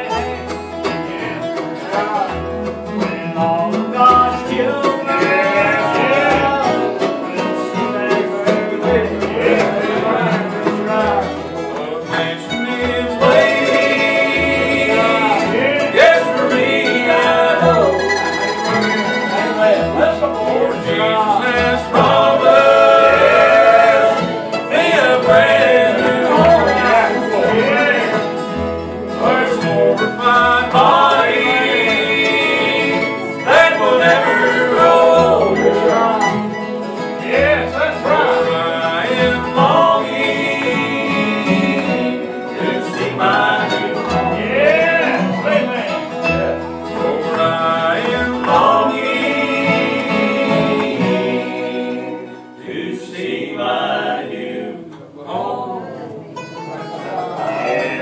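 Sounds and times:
person singing: 0.0s - 28.4s, 29.2s - 36.6s
acoustic guitars strummed and picked: 0.0s - 58.0s
mandolin: 0.0s - 58.0s
upright bass: 0.0s - 58.0s.

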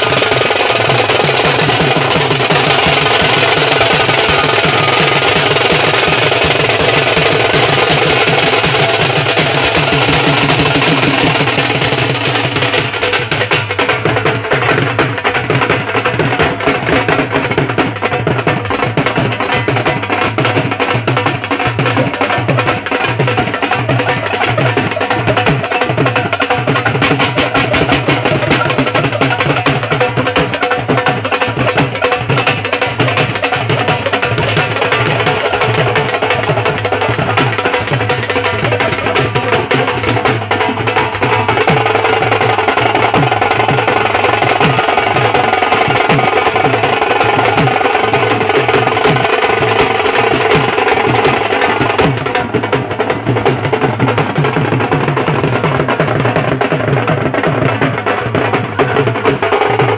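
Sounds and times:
folk pipe melody: 0.0s - 13.8s
fast hand drumming: 0.0s - 59.9s.

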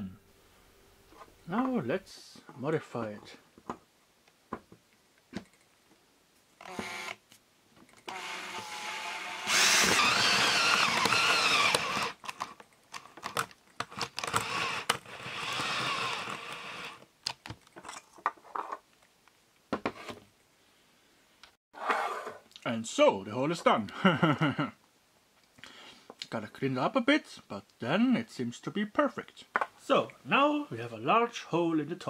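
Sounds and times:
power drill hole saw cutting metal: 6.6s - 7.2s, 8.1s - 12.2s, 14.2s - 17.0s.

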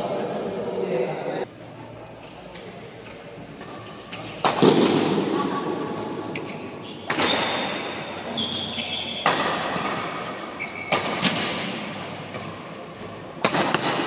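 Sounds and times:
racket hitting shuttlecock: 3.6s - 5.2s, 6.0s - 10.2s, 13.4s - 14.0s
shoes squeaking on floor: 6.3s - 12.0s.

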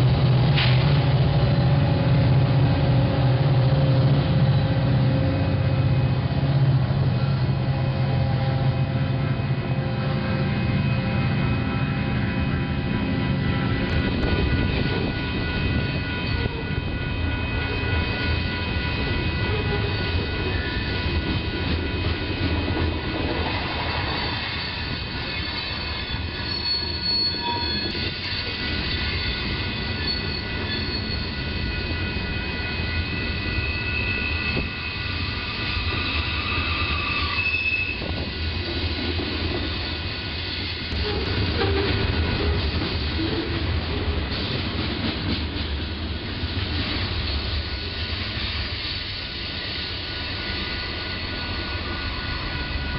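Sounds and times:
train wheels rumbling on rail: 0.0s - 52.9s
high-pitched wheel squeal: 23.9s - 38.3s.

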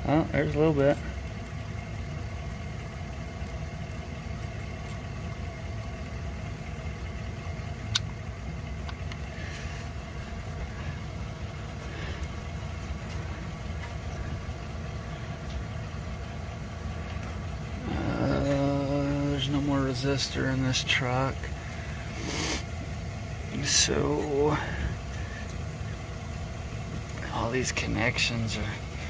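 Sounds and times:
machine hum: 0.0s - 29.0s
sharp click: 7.9s - 8.1s.

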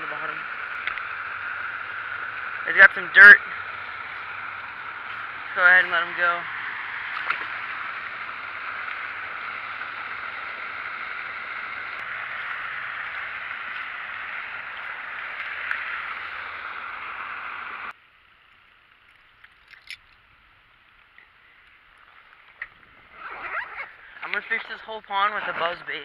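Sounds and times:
running water rushing: 0.0s - 17.9s.

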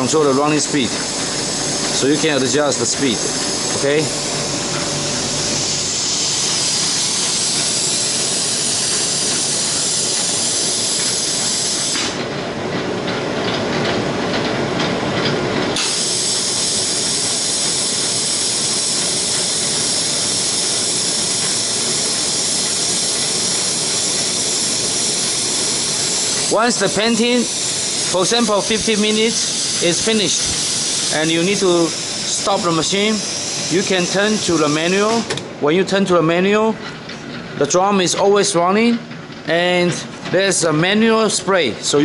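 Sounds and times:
air spray gun hissing: 0.0s - 12.2s, 15.8s - 35.4s
drum motor running: 0.0s - 41.9s.

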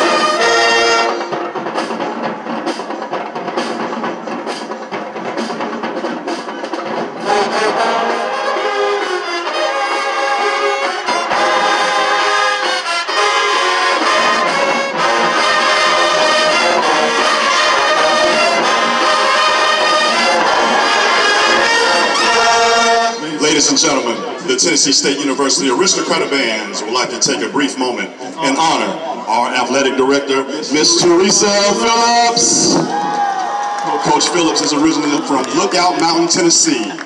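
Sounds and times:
trumpets and trombones: 0.0s - 27.0s
drums: 0.0s - 37.0s
marching band playing: 0.0s - 37.0s.

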